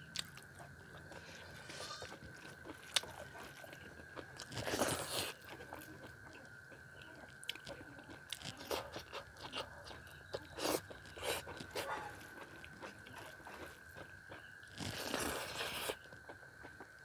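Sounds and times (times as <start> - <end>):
faint high whine: 0.0 - 17.0
wet chewing: 0.0 - 17.0.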